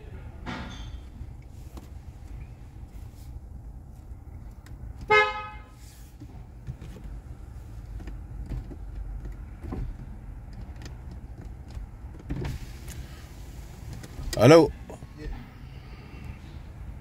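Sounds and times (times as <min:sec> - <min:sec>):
low background rumble: 0:00.0 - 0:17.0
car horn beep: 0:05.0 - 0:05.8.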